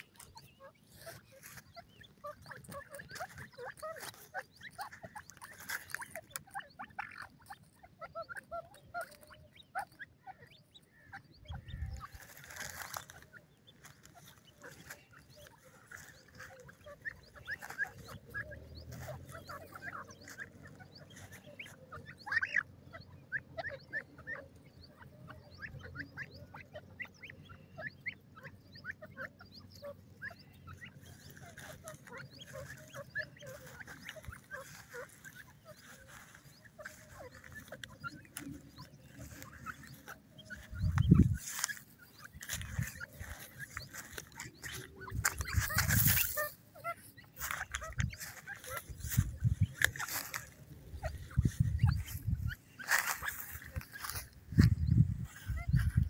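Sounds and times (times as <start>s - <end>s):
birds soft chirping calls: 0.0s - 56.0s.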